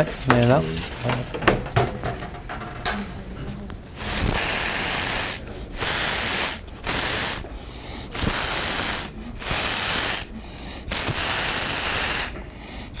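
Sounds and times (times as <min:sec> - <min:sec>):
atomizer sprayer hissing: 0:03.9 - 0:13.0.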